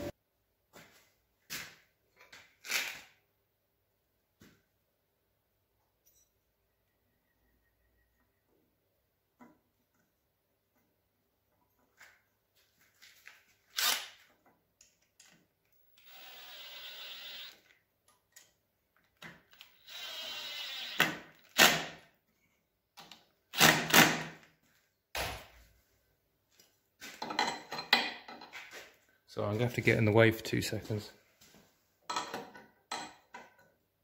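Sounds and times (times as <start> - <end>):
drill driving screws into wood: 13.7 - 14.3, 16.0 - 17.7, 19.5 - 22.0, 23.5 - 24.5.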